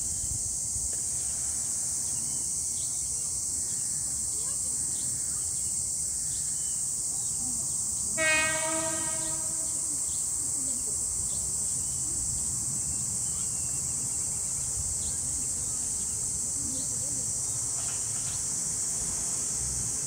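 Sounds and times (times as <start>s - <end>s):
high chorus of insects: 0.0s - 20.0s
train horn: 8.2s - 10.0s.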